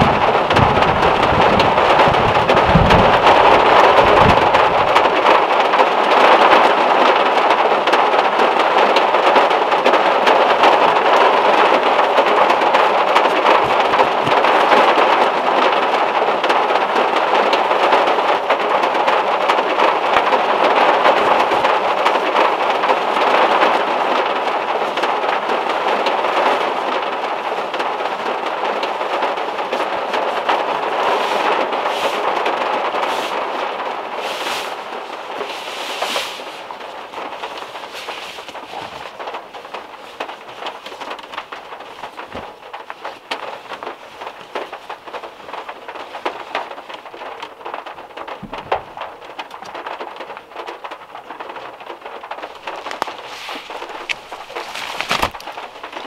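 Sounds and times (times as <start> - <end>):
low thunder rumble: 0.0 - 5.6
heavy rain on metal roof: 0.0 - 56.0.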